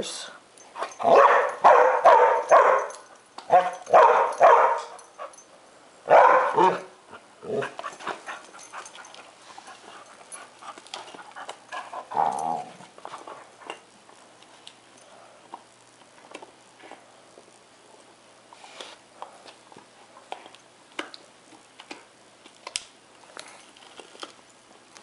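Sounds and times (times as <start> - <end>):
dog barking outbursts: 1.0 - 2.9, 3.5 - 5.0, 6.1 - 6.9.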